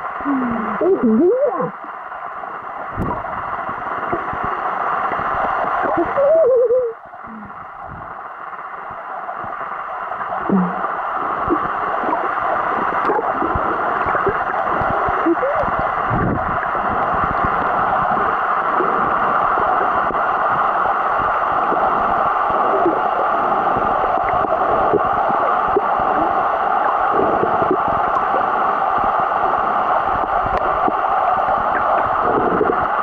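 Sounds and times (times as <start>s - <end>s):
small water gurgles: 0.0s - 33.0s
underwater rushing hiss: 8.6s - 33.0s.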